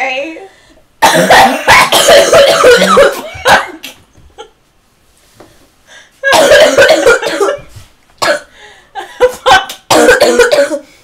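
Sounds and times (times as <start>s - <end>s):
person coughing harshly: 1.0s - 3.9s, 6.2s - 8.6s, 9.2s - 11.0s.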